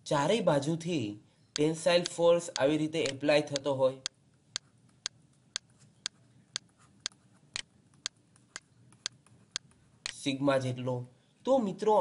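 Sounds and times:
steady ticking clicks: 1.5 - 10.2.

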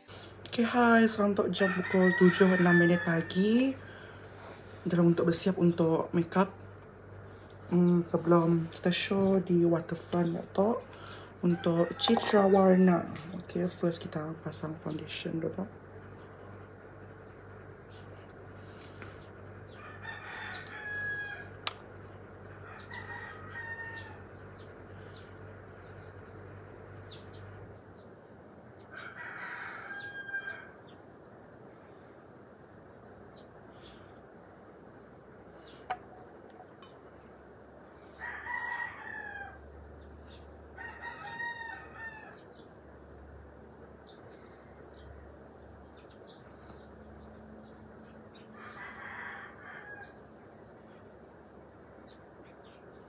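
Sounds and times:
rooster crowing: 1.5 - 3.8, 11.4 - 12.8, 19.7 - 21.7, 22.6 - 24.6, 28.8 - 31.0, 38.1 - 42.6, 47.7 - 50.4.

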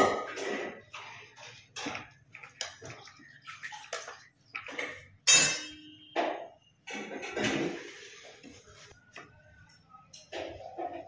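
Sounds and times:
dishes clinking and knocking: 0.0 - 2.3, 4.6 - 8.0, 9.6 - 11.0.

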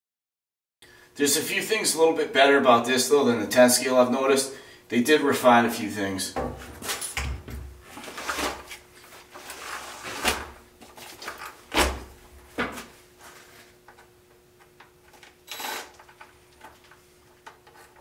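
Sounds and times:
impact driver whir: 15.5 - 16.0.

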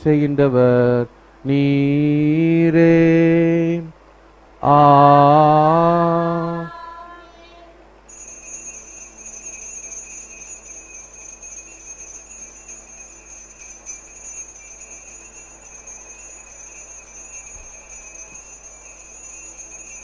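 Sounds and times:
altar bell ringing: 8.1 - 20.0.

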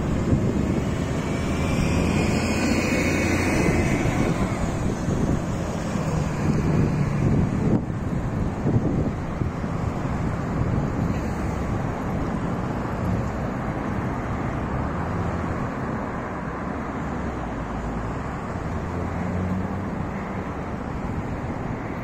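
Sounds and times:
wind on microphone: 0.0 - 14.0
road traffic noise: 0.0 - 22.0.

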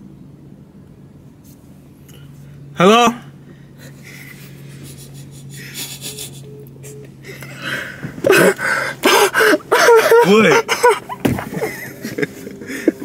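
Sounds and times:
stifled breathy laughter: 3.8 - 13.0
young men laughing and shrieking: 7.3 - 13.0.

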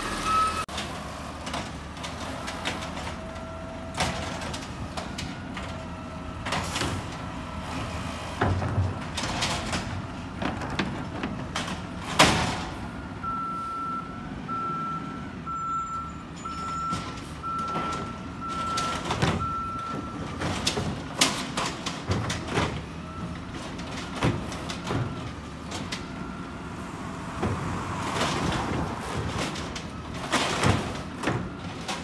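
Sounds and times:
garbage truck engine running: 0.0 - 13.4
reversing alarm beeps: 0.1 - 0.7, 13.0 - 20.4
knocks and bangs of bins: 8.3 - 12.8, 16.9 - 26.2, 27.3 - 32.0.

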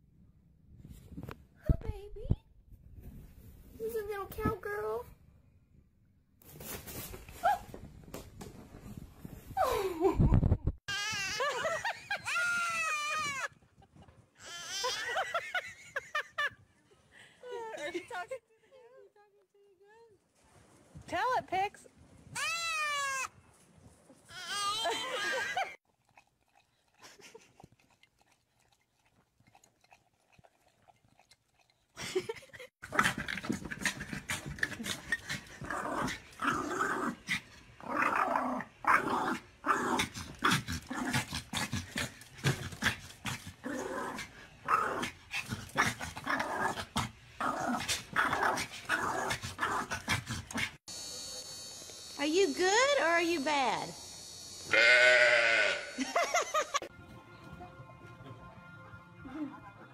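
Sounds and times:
small dog barking and growling: 32.8 - 50.8
young goat bleating: 54.7 - 56.0.

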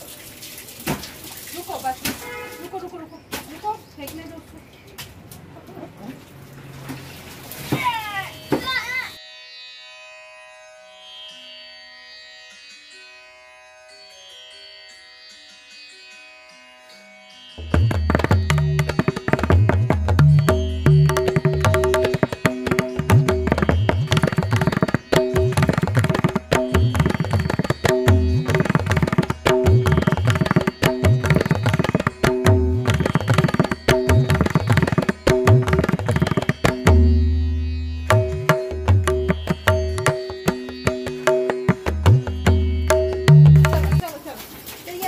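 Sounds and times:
tabla-like drum beat: 17.6 - 44.1.

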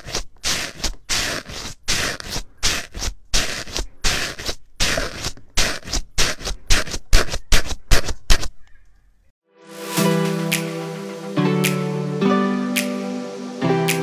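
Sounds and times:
foam slime crackling crunches: 0.0 - 7.0.

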